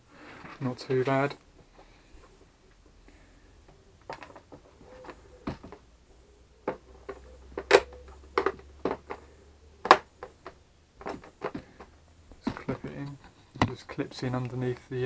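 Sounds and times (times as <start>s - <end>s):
plastic and metal clicks and knocks: 3.7s - 5.8s, 6.6s - 14.8s.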